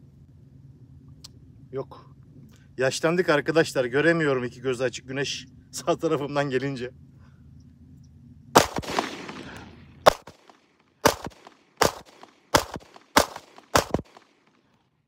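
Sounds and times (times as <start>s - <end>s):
pistol shots: 8.6s - 14.4s.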